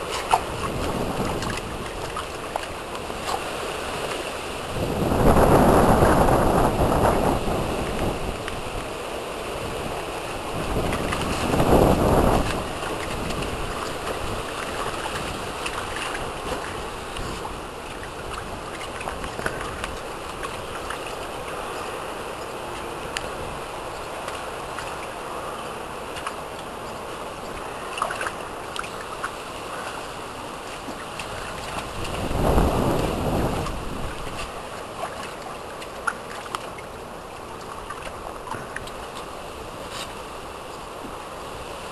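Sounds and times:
water splashing in a pool: 0:00.0 - 0:41.9
water dripping: 0:10.6 - 0:25.2.

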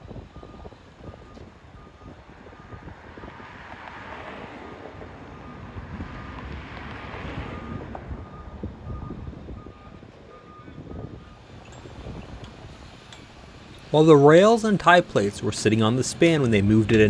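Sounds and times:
vehicle backup alarm beeping: 0:00.0 - 0:02.9, 0:04.6 - 0:05.8, 0:07.4 - 0:17.0.

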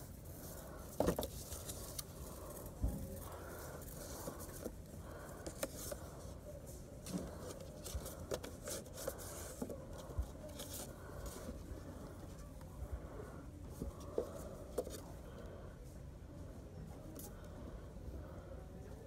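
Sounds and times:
light clicks and paper rustles: 0:00.0 - 0:12.7.

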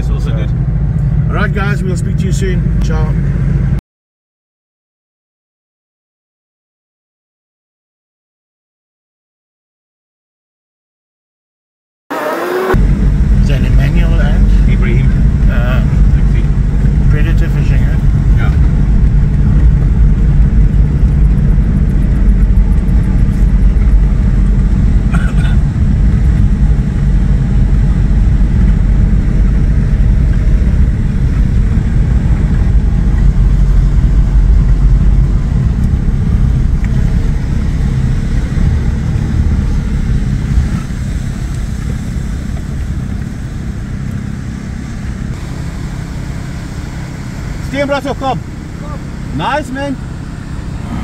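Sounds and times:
vehicle engine and road noise: 0:00.0 - 0:03.8, 0:12.1 - 0:51.0.

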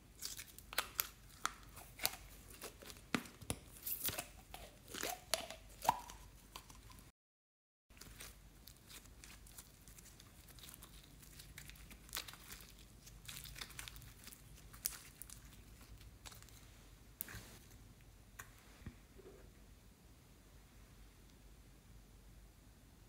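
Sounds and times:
slime crackling and popping: 0:00.2 - 0:07.0, 0:08.0 - 0:16.6.

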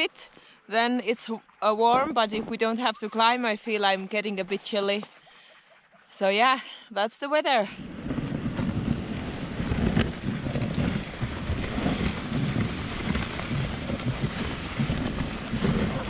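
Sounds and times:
wind buffeting microphone: 0:07.7 - 0:16.0.

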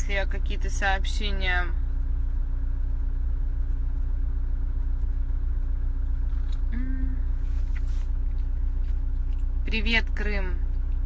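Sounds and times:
car cabin low hum: 0:00.0 - 0:11.0
person humming: 0:06.7 - 0:07.4.

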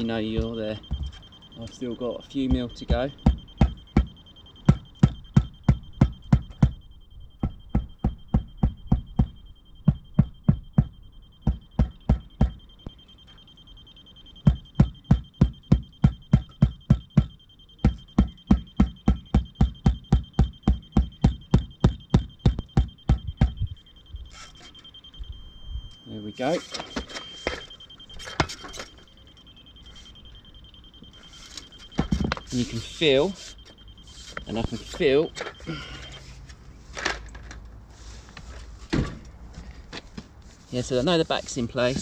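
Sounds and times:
high-pitched laser level signal: 0:00.0 - 0:36.3, 0:40.7 - 0:42.0
rubber mallet tapping paving slab: 0:07.4 - 0:12.6, 0:14.4 - 0:23.6.

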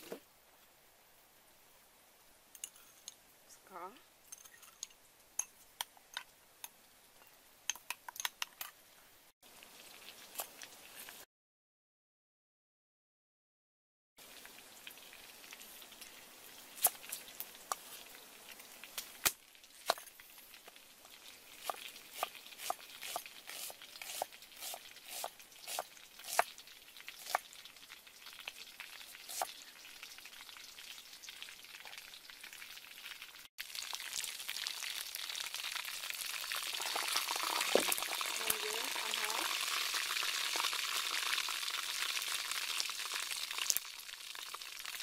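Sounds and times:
faint steady hiss: 0:00.0 - 0:11.3, 0:14.2 - 0:45.0
chicken frying in a wok: 0:07.7 - 0:11.3, 0:14.2 - 0:45.0.

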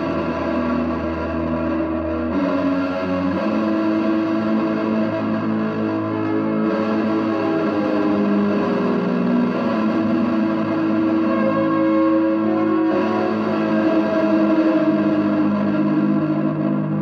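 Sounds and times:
droning electric guitar tones: 0:00.0 - 0:17.0.

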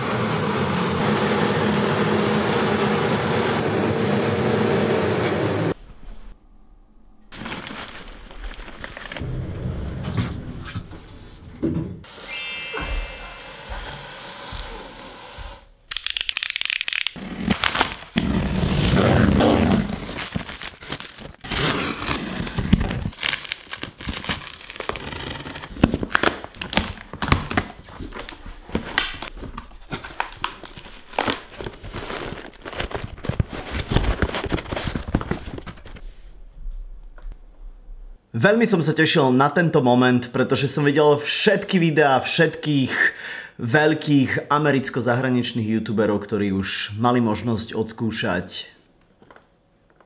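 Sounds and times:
cardboard flaps rustling: 0:07.3 - 0:09.2, 0:17.4 - 0:36.4
plastic wrap tearing and crinkling: 0:07.3 - 0:09.2, 0:15.9 - 0:36.1
box cutter slicing tape: 0:15.9 - 0:27.6.

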